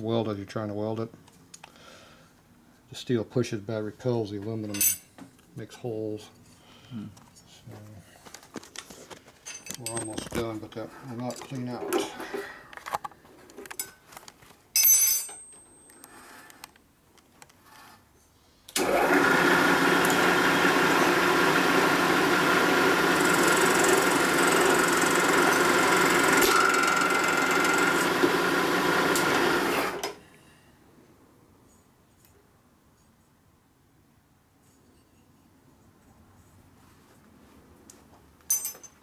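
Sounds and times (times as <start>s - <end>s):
milling machine whine: 18.8s - 30.2s.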